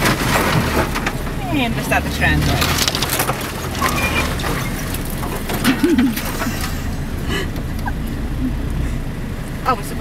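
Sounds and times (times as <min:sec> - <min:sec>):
knocks and rattles: 0:00.0 - 0:08.0
car engine low rumble: 0:00.0 - 0:10.0.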